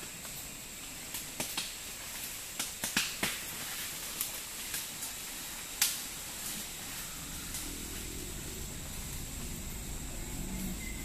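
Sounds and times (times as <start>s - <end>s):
steady hiss: 0.0s - 11.0s
twigs and leaves snapping underfoot: 1.0s - 7.8s
thin high tone: 7.2s - 11.0s.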